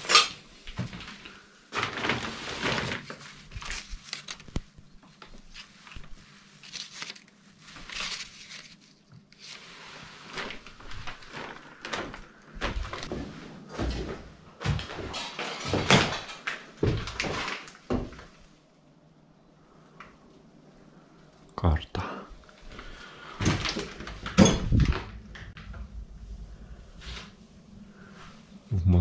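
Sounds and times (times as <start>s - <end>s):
paper rustling: 1.0s - 13.1s.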